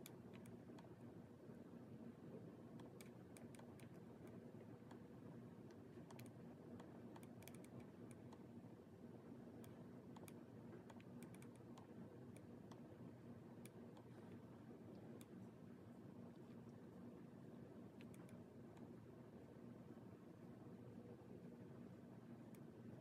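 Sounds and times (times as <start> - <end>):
low steady hum: 0.0 - 23.0
laptop keys clicking: 6.1 - 8.4, 10.2 - 12.5.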